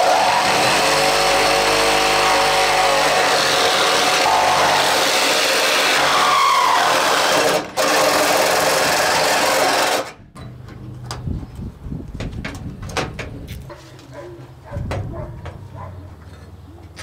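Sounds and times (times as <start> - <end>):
reciprocating saw cutting sheet metal: 0.0 - 10.1.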